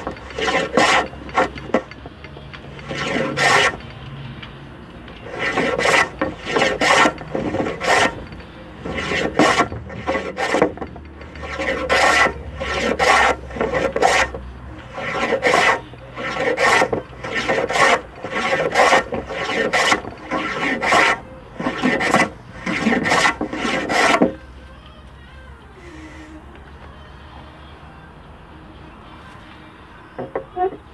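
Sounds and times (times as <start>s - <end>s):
hand plane cutting wood: 0.0s - 3.9s, 5.2s - 24.4s.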